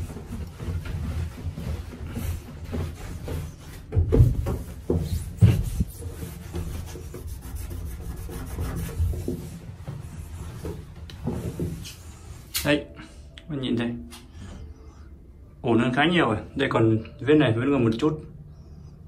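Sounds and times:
cloth rubbing on tiles: 0.0s - 12.5s.

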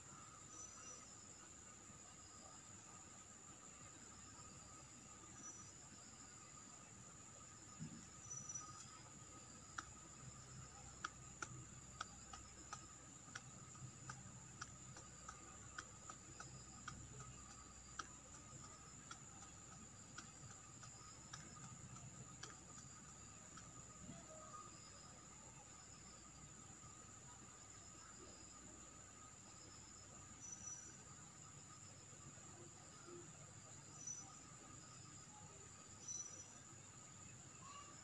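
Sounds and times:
faint sharp clicks: 9.6s - 24.3s.

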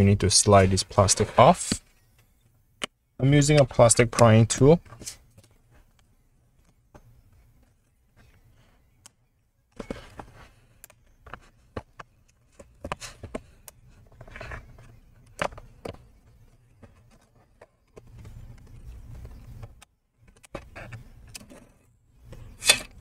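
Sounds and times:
plastic scraping and rubbing: 9.7s - 23.0s.

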